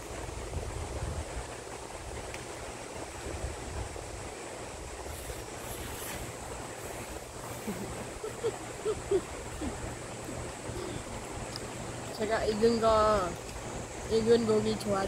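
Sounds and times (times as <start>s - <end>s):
stream rushing: 0.0s - 15.0s
woman chuckling: 7.4s - 11.1s.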